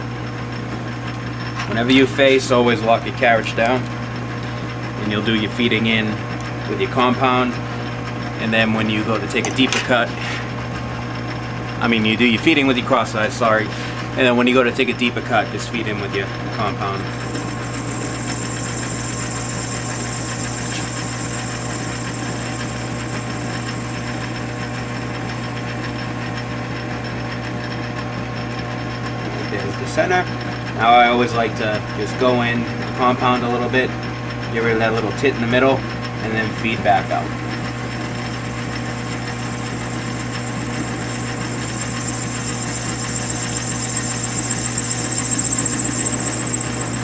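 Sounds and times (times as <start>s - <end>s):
metal lathe cutting aluminum: 15.9s - 27.8s, 37.0s - 47.0s
thin high whine: 16.9s - 25.6s, 39.1s - 47.0s.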